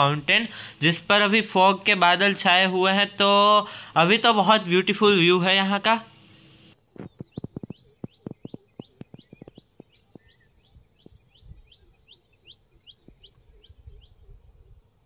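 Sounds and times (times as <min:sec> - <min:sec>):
bird rising chirp: 0:07.0 - 0:14.8.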